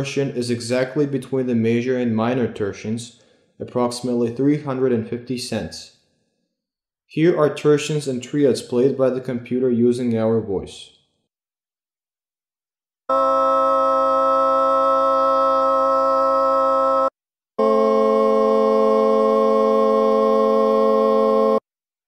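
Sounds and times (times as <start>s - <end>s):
synthesized choral chords: 13.1s - 21.6s.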